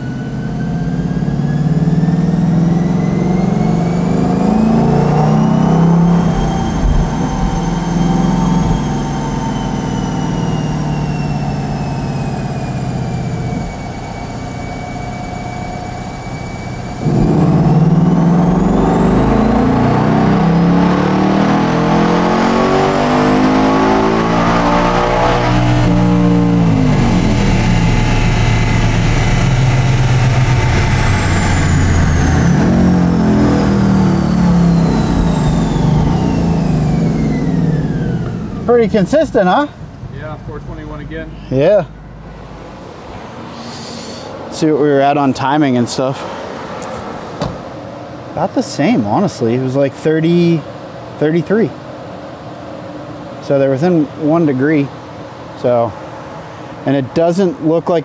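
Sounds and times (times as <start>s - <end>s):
whine climbing in pitch: 0.0s - 46.2s
car engine revving on dyno: 0.0s - 49.1s.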